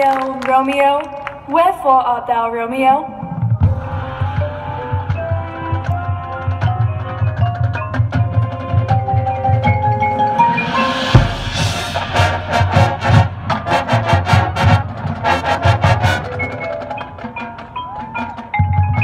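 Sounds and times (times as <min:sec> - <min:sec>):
mallet keyboard notes: 0:03.6 - 0:12.4, 0:15.9 - 0:19.0
sharp percussion strikes: 0:03.7 - 0:19.0
heavy low hit: 0:10.4 - 0:15.1.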